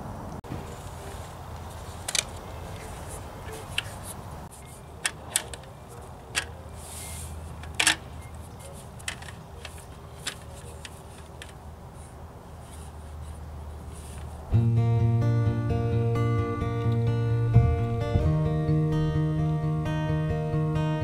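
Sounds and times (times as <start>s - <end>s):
folding table clicks and clatters: 4.7s - 6.6s, 7.6s - 11.6s.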